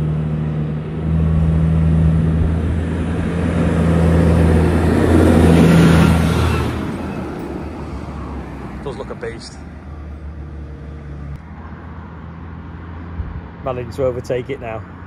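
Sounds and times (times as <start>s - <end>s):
tractor engine passing: 0.0s - 15.0s
tyre noise on road: 0.0s - 15.0s.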